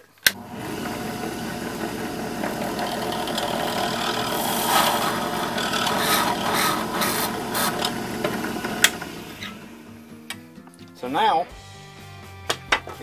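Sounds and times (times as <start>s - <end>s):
drill press motor humming: 0.2s - 10.1s
drill bit scraping plastic: 0.7s - 9.7s.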